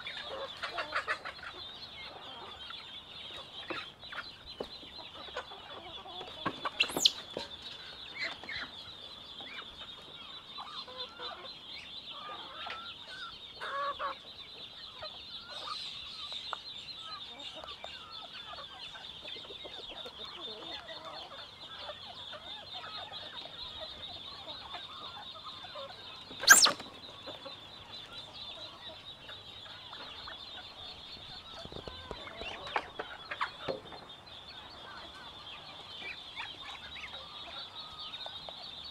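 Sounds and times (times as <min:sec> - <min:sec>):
chickens clucking: 0:00.0 - 0:38.9.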